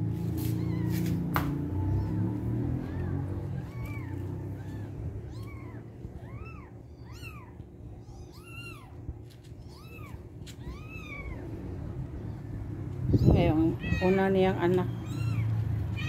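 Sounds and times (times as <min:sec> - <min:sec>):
low background rumble: 0:00.0 - 0:16.0.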